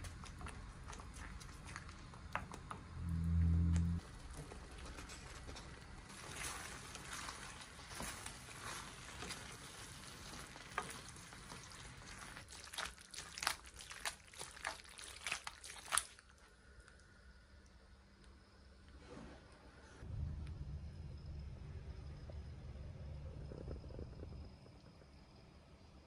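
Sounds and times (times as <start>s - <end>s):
pasta stirred squelching: 0.0s - 2.8s, 4.0s - 16.8s.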